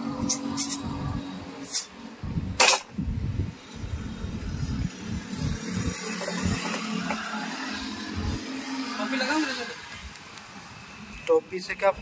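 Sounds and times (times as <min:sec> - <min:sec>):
low engine rumble: 0:00.0 - 0:08.5.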